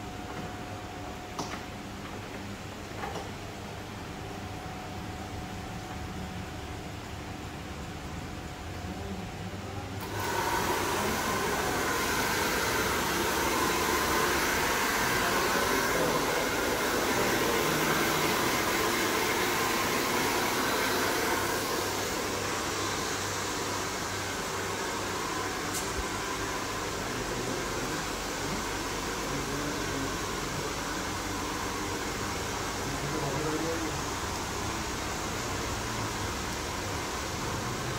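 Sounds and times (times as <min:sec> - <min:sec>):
hair dryer blowing: 0:10.0 - 0:37.9.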